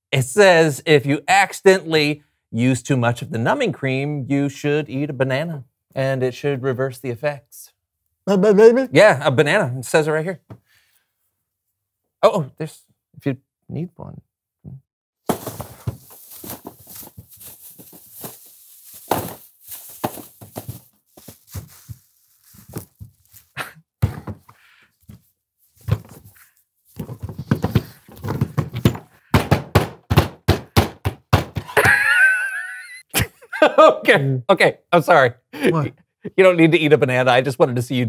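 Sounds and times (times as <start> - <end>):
plastic bag rustling: 15.3 - 23.6
high-pitched laugh: 31.7 - 33.8.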